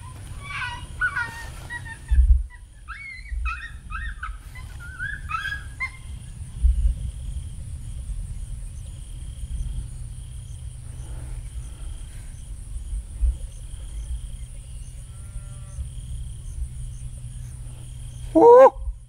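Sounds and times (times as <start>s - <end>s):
insects chirping: 0.0s - 19.0s
low rumble: 5.2s - 19.0s
faint drawn-out animal call: 14.8s - 15.9s, 18.2s - 19.0s.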